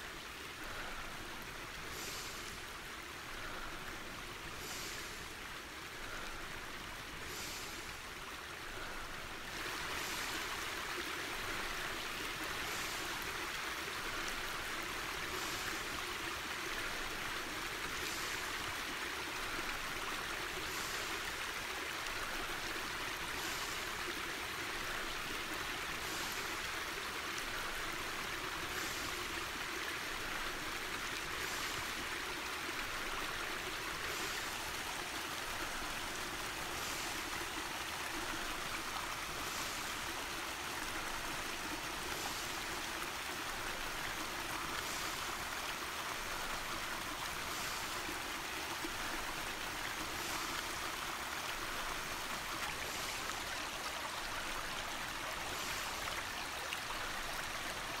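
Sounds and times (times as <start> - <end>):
stream running over rocks: 0.0 - 58.0.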